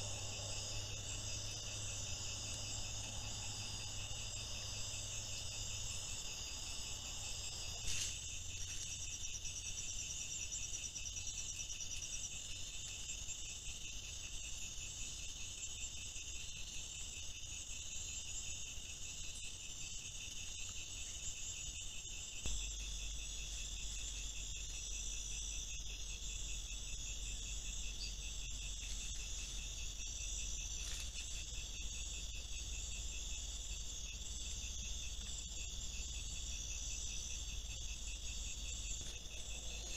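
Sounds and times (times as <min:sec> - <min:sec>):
crickets chirping: 0:00.0 - 0:39.9.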